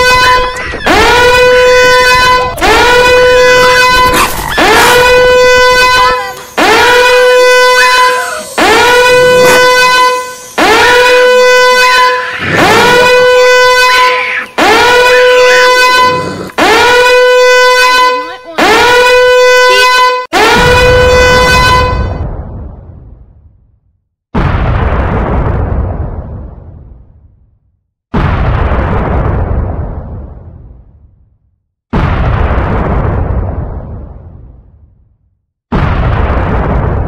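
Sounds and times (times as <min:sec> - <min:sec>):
blaring horn-like tone: 0:00.0 - 0:22.2.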